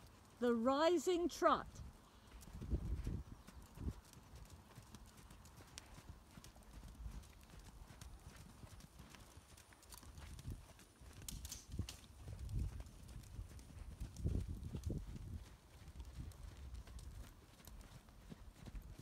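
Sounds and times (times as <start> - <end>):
horse hoofbeats on sand: 0.0 - 19.0.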